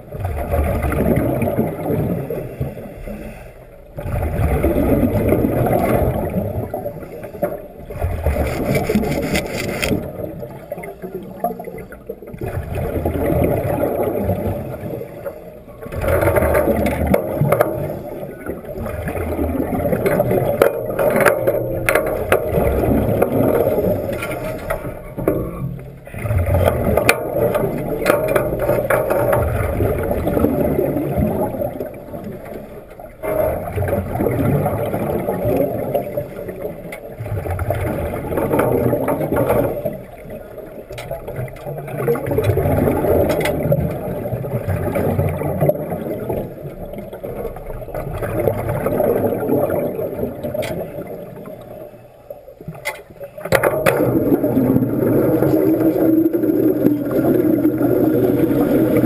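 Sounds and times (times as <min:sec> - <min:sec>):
underwater exhaust bubbles gurgling: 0:00.0 - 0:59.0
underwater welding arc: 0:08.2 - 0:10.0
clicks: 0:08.4 - 0:10.0.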